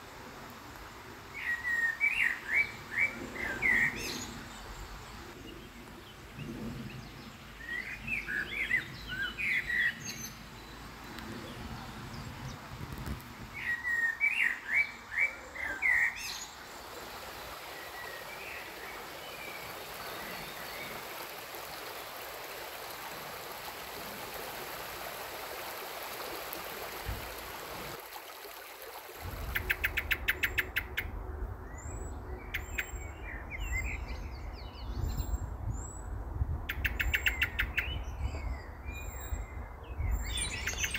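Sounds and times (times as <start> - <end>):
stream running over stones: 0.0 - 31.0
songbirds singing: 1.4 - 21.3, 29.3 - 40.9.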